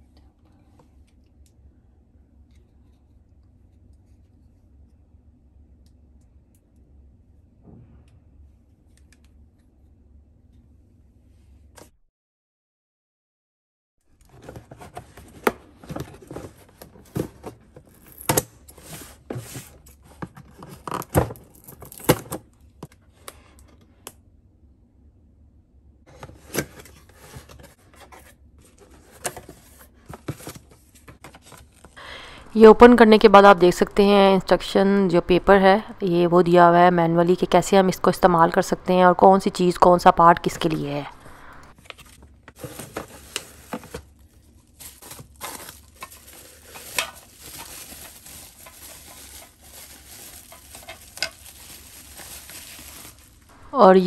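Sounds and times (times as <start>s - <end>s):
cardboard and paper rustling: 14.2s - 22.4s, 26.1s - 32.0s, 40.4s - 53.7s
sharp knocks and crinkles: 44.8s - 53.6s.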